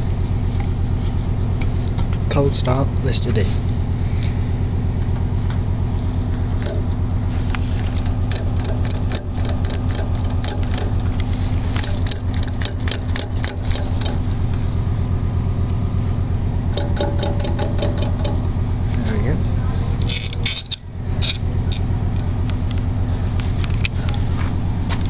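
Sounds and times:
stationary engine running: 0:00.0 - 0:24.9
metallic clicking and tapping: 0:06.3 - 0:14.3, 0:16.7 - 0:18.6, 0:20.1 - 0:21.8.

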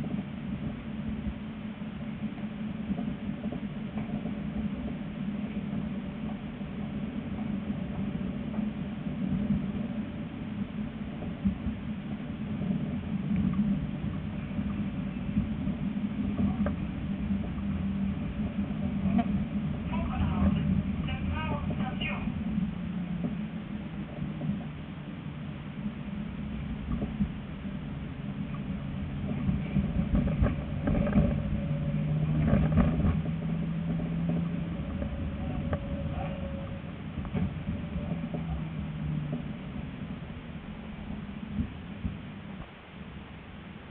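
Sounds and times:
low electric drive hum: 0:00.0 - 0:43.9
tram wheels rumbling on rail: 0:00.0 - 0:43.9
faint clicks: 0:12.6 - 0:17.7.

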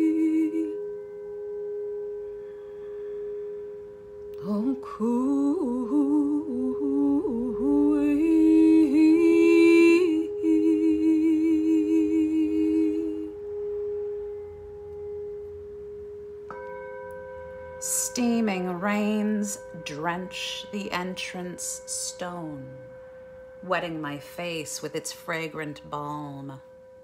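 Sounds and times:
singing bowl ringing: 0:00.0 - 0:27.0.

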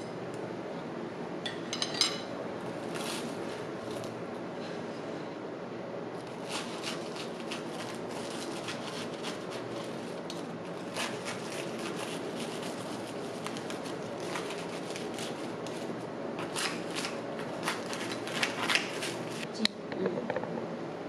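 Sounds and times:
steady background noise: 0:00.0 - 0:21.0
knife crunching through pastry: 0:06.2 - 0:19.5.

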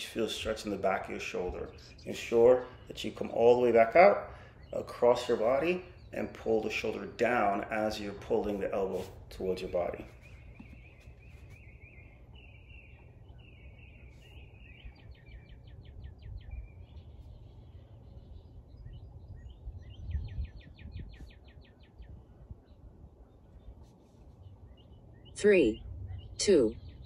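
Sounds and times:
birds chirping: 0:00.0 - 0:27.0
low steady rumble: 0:21.9 - 0:27.0.

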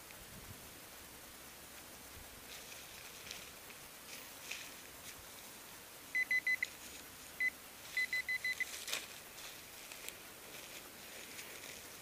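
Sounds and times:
soil or leaf rustle: 0:00.0 - 0:12.0
pinpointer beeping: 0:06.2 - 0:06.7, 0:07.4 - 0:08.7.

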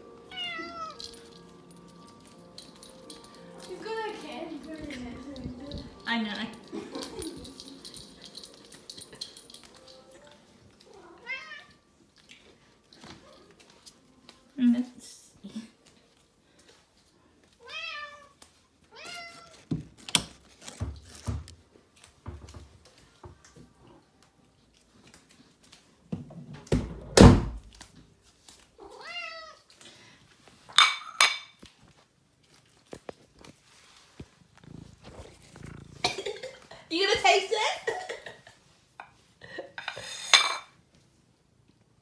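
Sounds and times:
cat meowing: 0:00.3 - 0:01.0, 0:10.9 - 0:11.9, 0:17.6 - 0:19.6, 0:28.8 - 0:29.7.

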